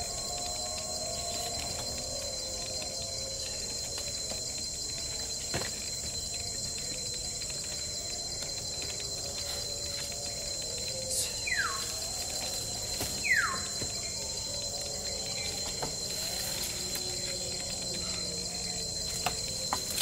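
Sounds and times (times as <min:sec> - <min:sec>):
insects droning: 0:00.0 - 0:20.0
sharp bird whistles: 0:11.2 - 0:11.9, 0:13.2 - 0:13.7.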